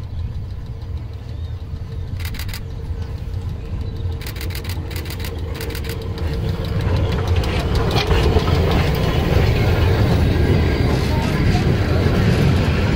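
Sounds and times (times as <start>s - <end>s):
rapid sharp clicking: 0.0s - 9.0s
railcar rumble: 0.0s - 12.9s.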